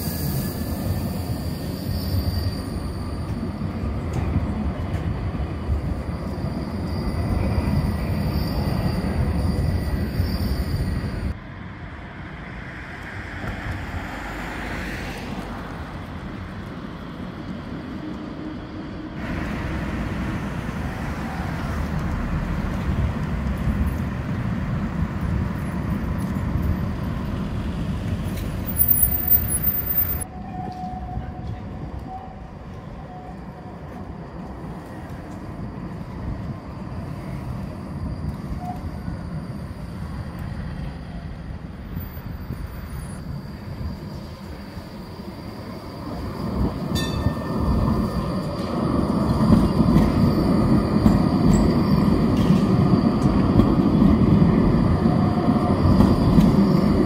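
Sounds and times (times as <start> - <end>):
high squeal: 0.0 - 4.1, 5.4 - 11.4, 28.3 - 33.7, 35.4 - 57.0
trams running on track: 0.0 - 57.0
passing car traffic: 11.3 - 30.3.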